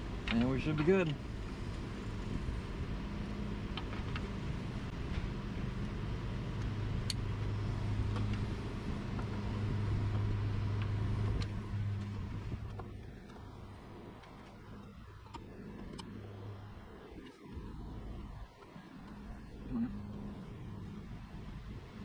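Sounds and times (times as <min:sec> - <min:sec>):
engine running low hum: 0:00.0 - 0:22.0.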